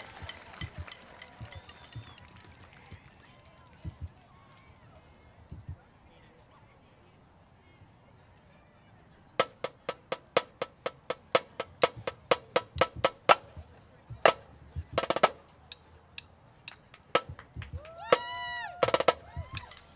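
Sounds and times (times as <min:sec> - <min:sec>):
drumline playing sharp clicks: 0:00.0 - 0:04.2, 0:09.4 - 0:19.9.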